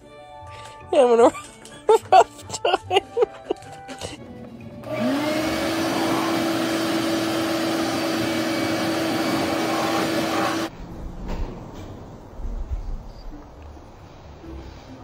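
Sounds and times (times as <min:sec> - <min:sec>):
vacuum cleaner motor whine: 0:04.8 - 0:10.7.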